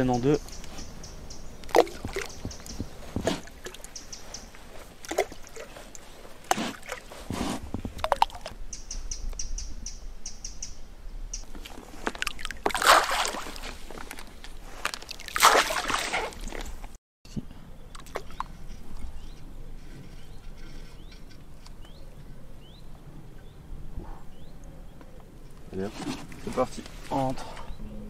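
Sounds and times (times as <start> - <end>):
bait splashing onto water: 1.6 - 4.0, 11.5 - 16.7.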